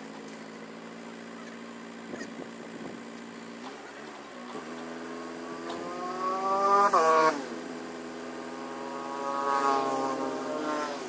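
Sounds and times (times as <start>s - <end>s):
truck engine revving: 3.6s - 11.0s.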